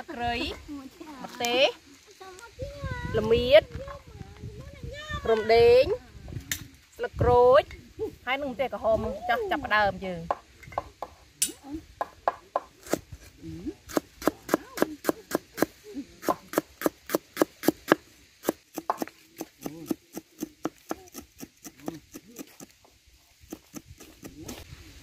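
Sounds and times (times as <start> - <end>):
cleaver chopping on wooden board: 13.9 - 22.7.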